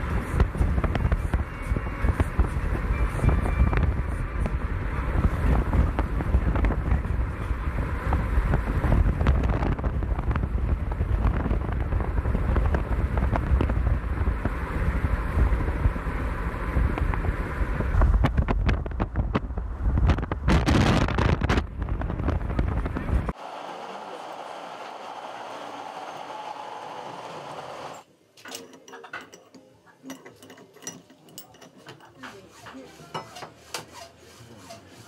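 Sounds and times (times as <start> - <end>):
wind noise on microphone: 0.0 - 23.4.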